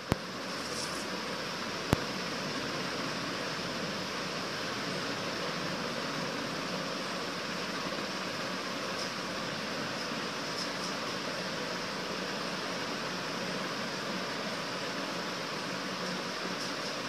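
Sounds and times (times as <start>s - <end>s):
room noise hiss: 0.0s - 17.0s.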